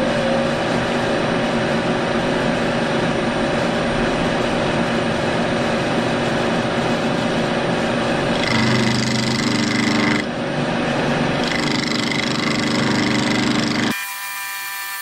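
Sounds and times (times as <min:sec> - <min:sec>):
milling machine running: 0:04.6 - 0:15.0
end mill cutting steel: 0:08.2 - 0:10.3, 0:11.3 - 0:15.0.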